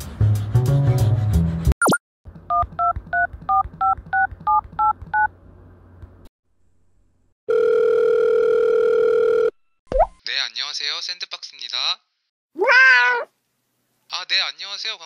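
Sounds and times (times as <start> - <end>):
steady phone line tone: 7.5 - 9.5.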